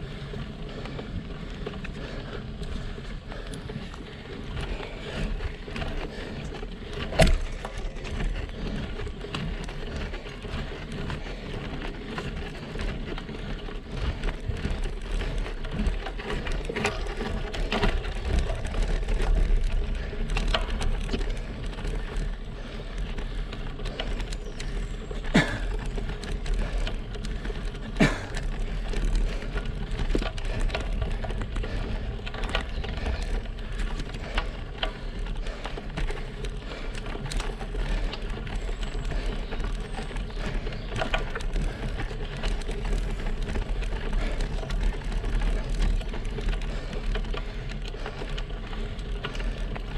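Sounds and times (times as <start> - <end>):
bike tyres crackling on asphalt: 0.0 - 49.9.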